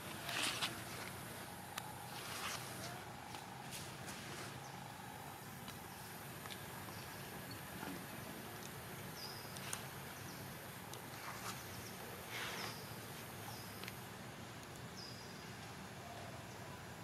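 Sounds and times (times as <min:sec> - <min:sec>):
steady background hiss: 0:00.0 - 0:17.0
brief rustle: 0:00.1 - 0:01.2.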